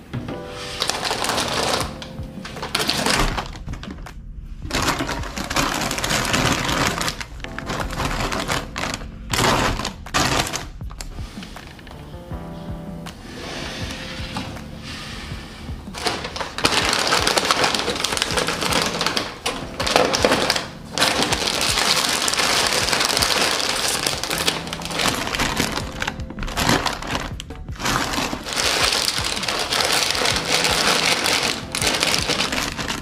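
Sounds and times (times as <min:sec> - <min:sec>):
soft music: 0:00.0 - 0:33.0
snack bags crinkling: 0:00.7 - 0:04.1, 0:04.7 - 0:12.0, 0:15.9 - 0:33.0.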